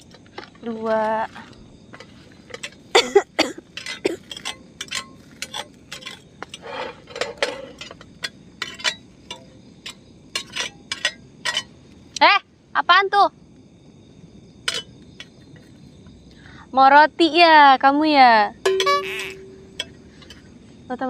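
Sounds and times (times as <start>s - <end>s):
metal tongs clinking on frying pan: 3.8s - 11.7s, 14.7s - 14.9s.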